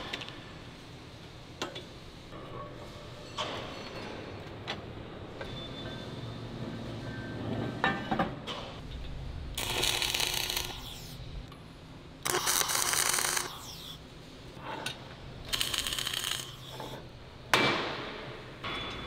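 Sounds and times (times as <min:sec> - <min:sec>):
welding arc crackling: 0:09.6 - 0:11.2, 0:12.2 - 0:14.0, 0:15.4 - 0:17.0.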